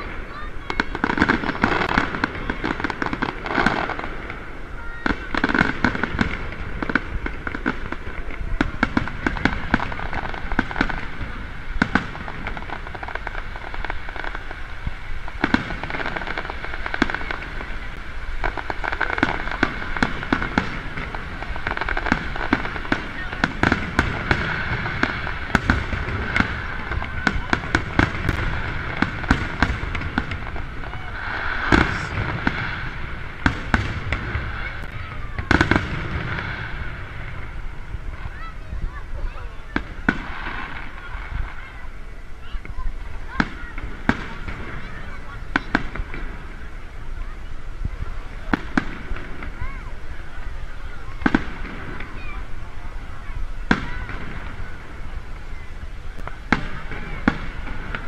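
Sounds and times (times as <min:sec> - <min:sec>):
crowd voices: 0:00.0 - 0:58.0
firework shells bursting: 0:00.7 - 0:38.1.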